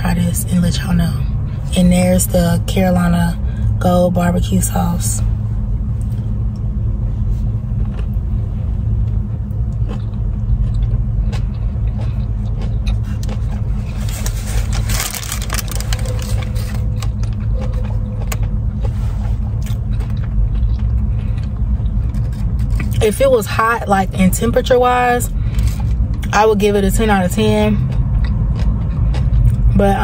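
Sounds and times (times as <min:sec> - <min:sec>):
car engine idling: 0:00.0 - 0:30.0
paper wrapper rustling: 0:13.9 - 0:17.3.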